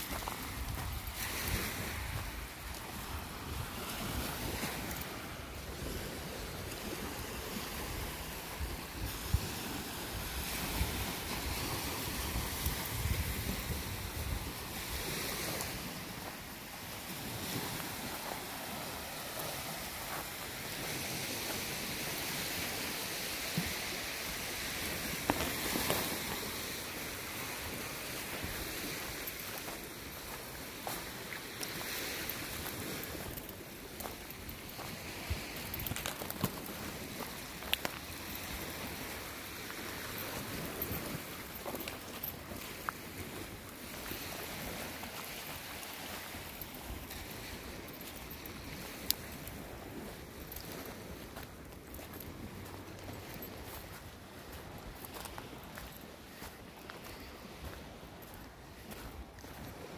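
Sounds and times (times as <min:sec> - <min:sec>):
wind rumbling on microphone: 0:00.0 - 0:31.0
small waves on gravel shore: 0:00.0 - 0:59.9
wind blowing: 0:00.0 - 0:59.9.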